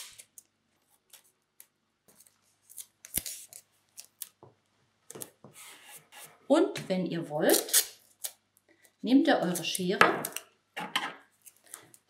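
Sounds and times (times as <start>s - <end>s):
tape tearing: 2.6s - 4.3s, 7.5s - 8.4s.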